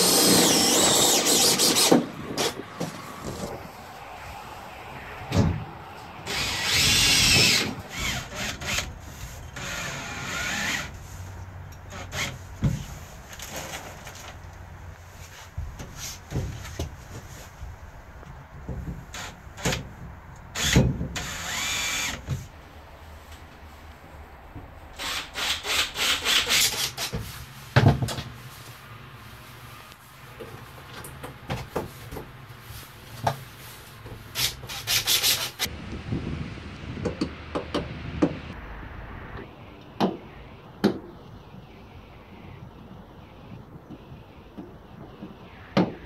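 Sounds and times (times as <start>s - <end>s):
cordless drill whining: 0.0s - 3.5s, 6.3s - 8.9s.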